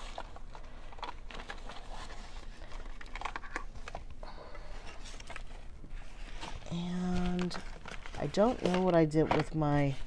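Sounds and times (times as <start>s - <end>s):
art supplies clicking and rustling: 0.0s - 4.2s, 6.4s - 10.0s.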